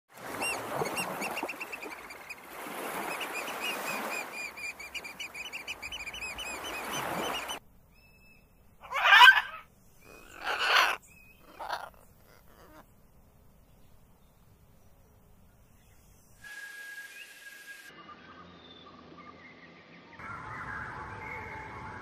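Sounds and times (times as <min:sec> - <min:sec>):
surf washing in: 0:00.1 - 0:07.6
harsh bird squawks: 0:08.8 - 0:12.8
short thin whistles: 0:16.4 - 0:18.0.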